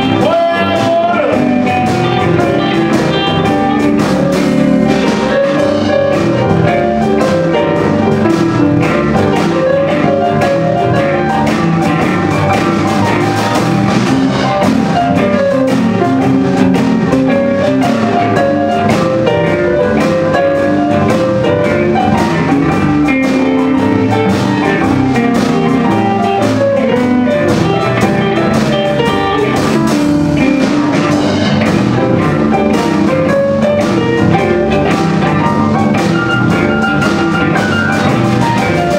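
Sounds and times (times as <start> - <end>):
electric blues band playing: 0.0 - 38.9.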